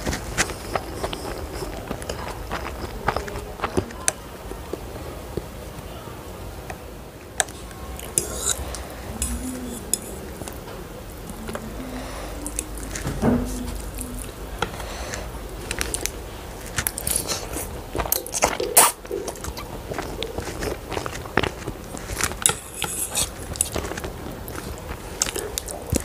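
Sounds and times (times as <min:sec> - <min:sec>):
chewing: 0:00.0 - 0:05.5, 0:07.4 - 0:26.0.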